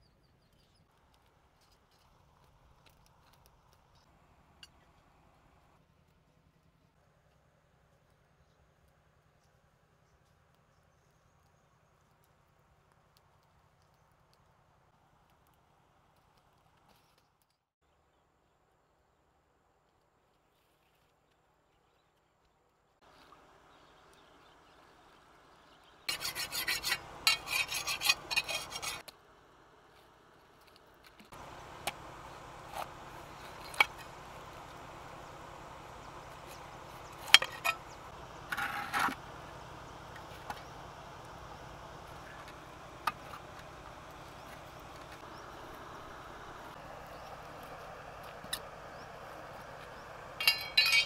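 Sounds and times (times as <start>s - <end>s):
loud rasping scrapes: 26.1s - 29.1s, 38.5s - 39.2s.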